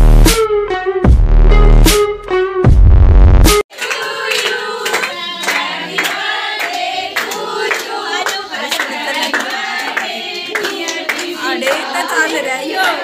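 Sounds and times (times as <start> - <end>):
hands clapping in rhythm: 3.5 - 13.0
young women singing together: 3.7 - 13.0.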